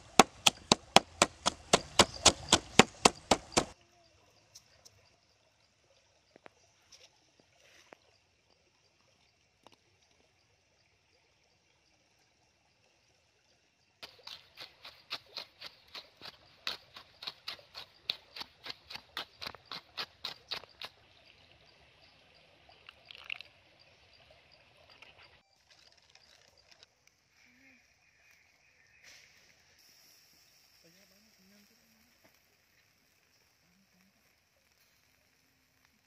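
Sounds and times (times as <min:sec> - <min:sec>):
wooden pestle pounding in bowl: 0:00.1 - 0:03.8
liquid trickling into bowl: 0:20.6 - 0:27.0.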